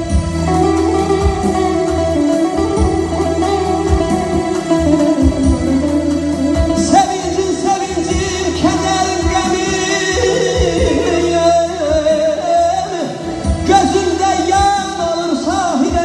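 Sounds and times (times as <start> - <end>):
amplified instrumental backing with beat: 0.0 - 16.0
man singing into microphone: 6.8 - 16.0.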